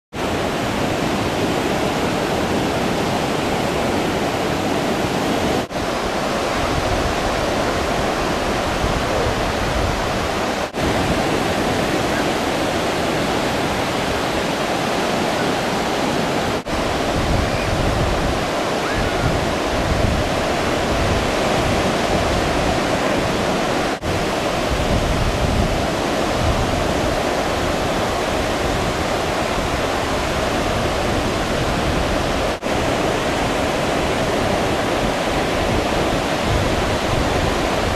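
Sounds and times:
breaking surf: 0.2s - 37.9s.

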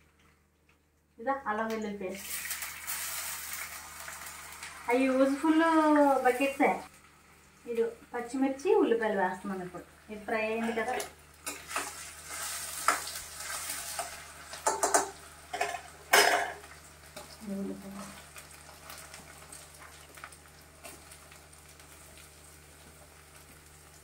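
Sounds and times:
vegetables sizzling in hot oil: 1.6s - 24.0s
spatula knocking and scraping pan: 10.6s - 12.0s, 12.8s - 13.1s, 14.0s - 16.6s.

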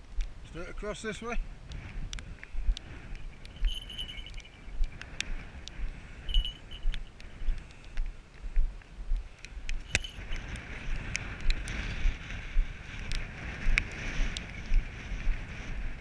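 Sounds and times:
wind buffeting microphone: 0.0s - 16.0s
footsteps on grass: 2.0s - 7.1s.

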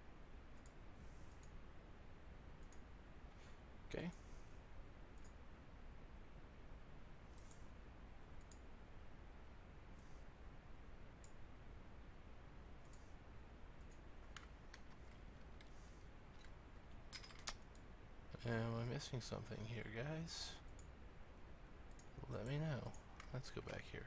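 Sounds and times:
low steady hiss: 0.0s - 24.0s
computer mouse clicks: 0.6s - 1.6s, 2.6s - 2.9s, 5.2s - 5.4s, 7.3s - 7.7s, 8.4s - 8.7s, 12.8s - 13.1s, 21.9s - 22.1s.

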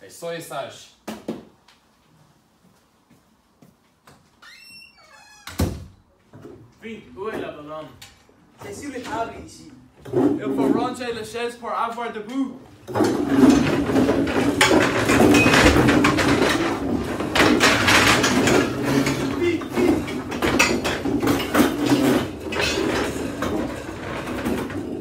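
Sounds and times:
chairs scraping on floor: 8.6s - 11.0s, 12.8s - 25.0s
furniture knocks and bangs: 12.9s - 25.0s.

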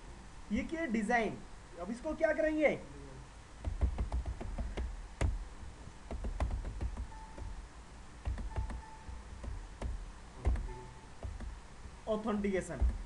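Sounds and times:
keyboard typing: 3.6s - 5.4s, 6.1s - 7.6s, 8.2s - 11.6s, 12.8s - 13.0s.

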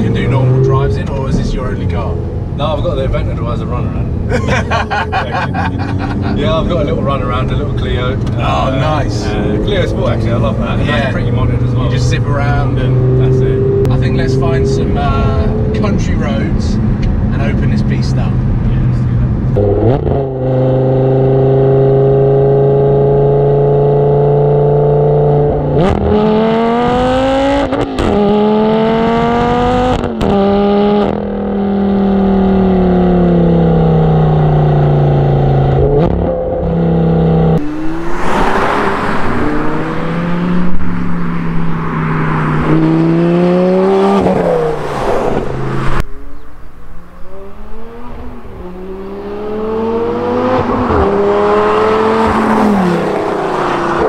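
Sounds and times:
sports car engine revving: 0.0s - 54.0s
wind rush: 37.6s - 54.0s.

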